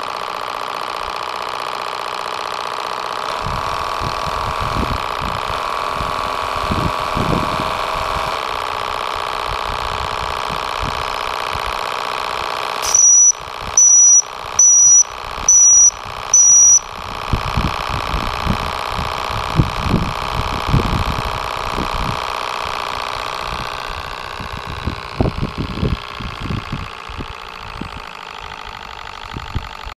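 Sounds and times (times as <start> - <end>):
steam engine running: 0.0 - 29.9
high-pitched tones: 12.8 - 17.0.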